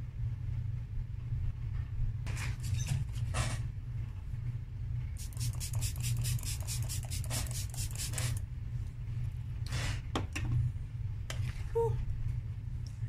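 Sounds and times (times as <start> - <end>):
steady low hum: 0.0 - 13.0
makeup brush scratchy strokes: 5.2 - 8.4.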